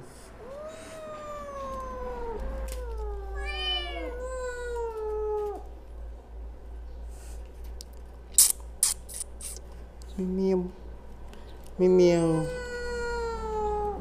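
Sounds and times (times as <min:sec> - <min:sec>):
kittens meowing: 0:00.4 - 0:05.7, 0:12.2 - 0:14.0.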